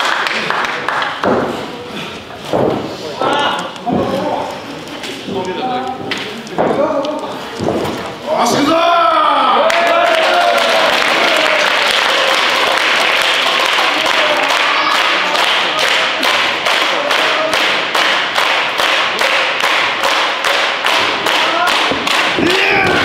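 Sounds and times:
crowd applauding: 0.0 - 1.2, 9.6 - 23.0
crowd clapping in unison: 0.0 - 1.3, 9.6 - 23.0
crowd shouting: 14.0 - 15.4, 21.0 - 23.0.

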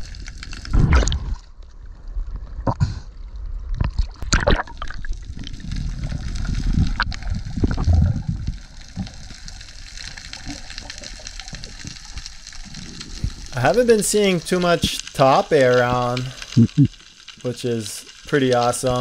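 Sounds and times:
water rushing underwater: 0.0 - 17.7
faint clicks and crackle: 0.0 - 19.0
low rumbling: 0.6 - 14.4.

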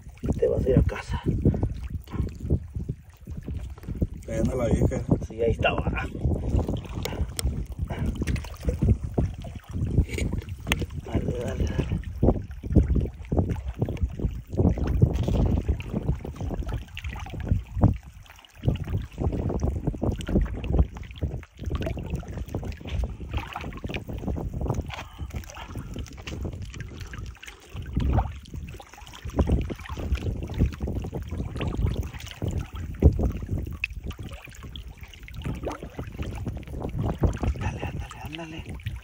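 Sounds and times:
sea water lapping against rocks: 0.0 - 39.0
wind gusts on microphone: 0.0 - 39.0.

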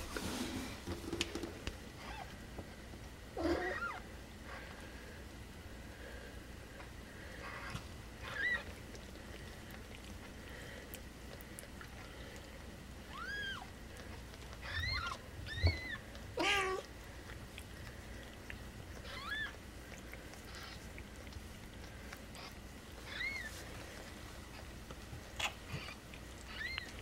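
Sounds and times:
kittens mewing: 3.4 - 4.0, 14.6 - 16.9, 18.9 - 23.5, 25.3 - 27.0.

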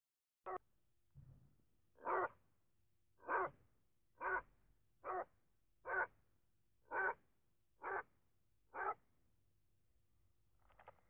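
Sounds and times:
dog barking: 2.0 - 2.4, 3.2 - 3.5, 4.2 - 4.4, 5.0 - 6.1, 6.9 - 7.2, 7.8 - 8.1, 8.7 - 9.0.

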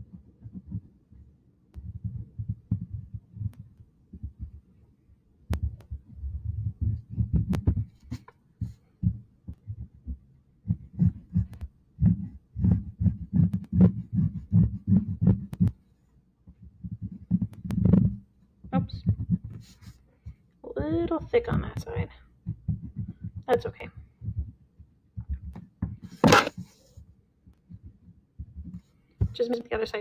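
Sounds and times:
crayon strokes on paper: 10.7 - 15.7.

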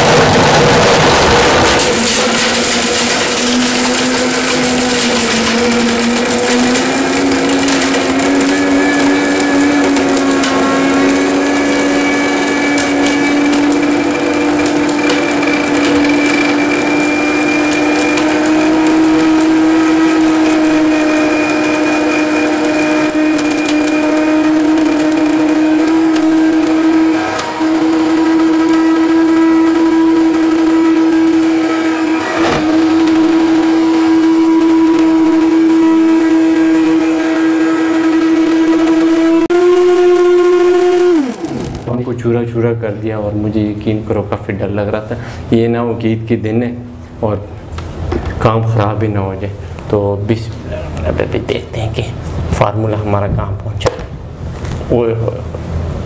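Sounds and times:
glass grinding and rattling: 0.0 - 37.6
blender motor whining: 0.0 - 42.1.

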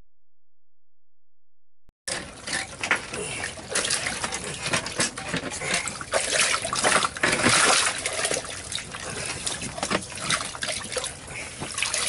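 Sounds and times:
water splashing in ice hole: 5.8 - 12.0.

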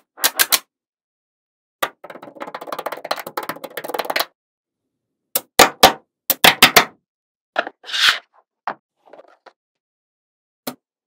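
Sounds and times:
brief scrape: 7.8 - 8.3.

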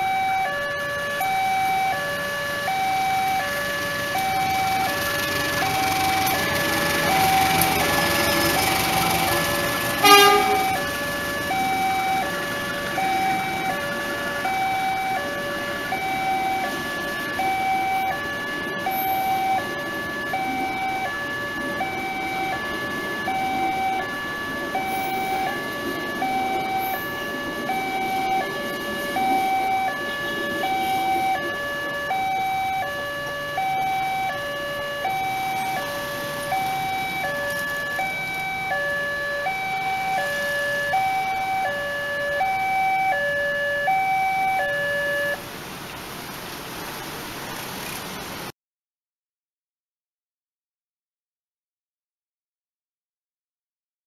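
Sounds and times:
passenger train running past: 0.0 - 45.4
two-tone crossing alarm chime: 0.0 - 45.4.

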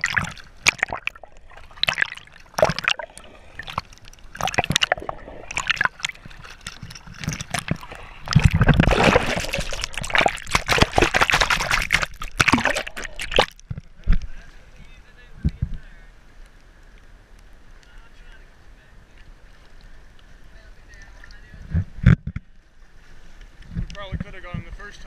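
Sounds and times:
churning water: 0.0 - 13.7
water sloshing and splashing: 0.0 - 14.2.

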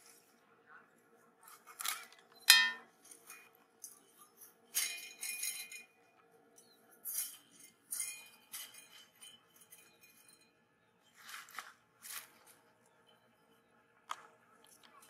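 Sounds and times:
metal fan guard clinking and scraping: 1.7 - 6.0, 6.6 - 10.6.

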